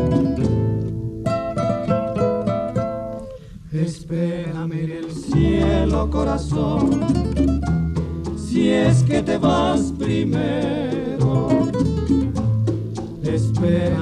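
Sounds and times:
ballad sung over acoustic guitar: 3.6s - 7.6s, 8.2s - 12.4s, 13.2s - 14.0s.

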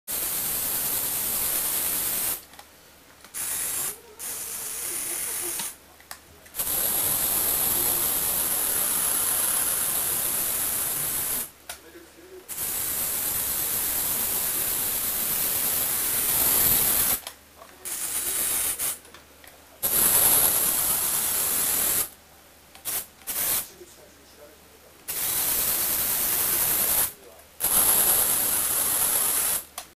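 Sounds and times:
toy electric motor whirring: 3.3s - 5.8s, 6.6s - 11.5s, 17.9s - 19.0s, 27.7s - 29.7s.

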